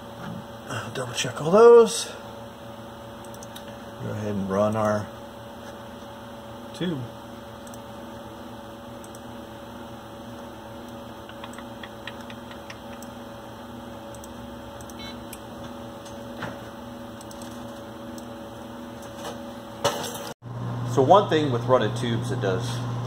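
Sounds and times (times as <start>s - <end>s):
background hum: 0.0s - 23.0s
computer mouse clicks: 3.2s - 3.6s, 7.6s - 7.8s, 9.0s - 9.2s, 10.9s - 13.2s, 14.1s - 15.0s, 17.2s - 17.5s.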